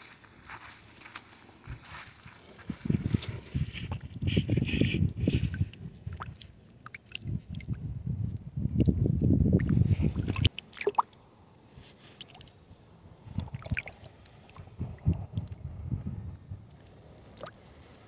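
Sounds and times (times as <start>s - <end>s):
shallow water sloshing and gurgling: 3.2s - 7.9s, 8.8s - 18.0s
small splashes and drips: 6.1s - 7.8s, 9.6s - 11.3s, 12.1s - 12.5s, 13.2s - 15.6s, 16.7s - 17.7s.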